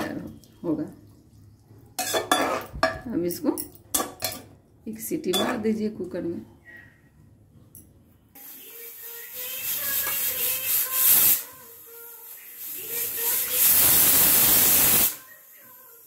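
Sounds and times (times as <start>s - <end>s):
pressure cooker steam hiss and whistle: 8.4s - 15.7s.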